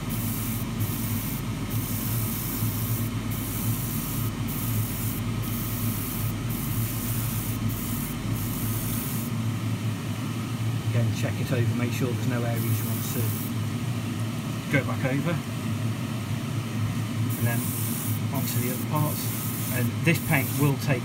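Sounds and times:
airbrush hissing: 0.0s - 9.4s, 12.6s - 13.6s, 17.2s - 20.9s.

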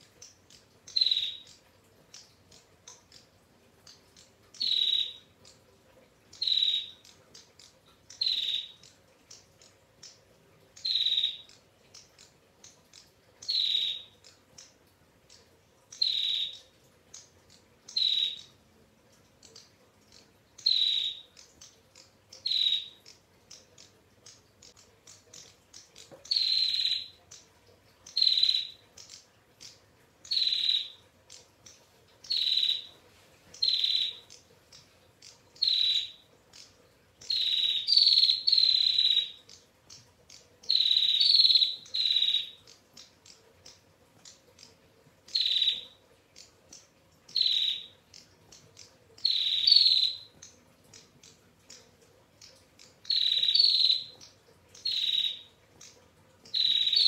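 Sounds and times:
bird trilling call: 49.2s - 50.3s, 53.1s - 54.1s, 54.8s - 55.5s, 56.6s - 57.0s.

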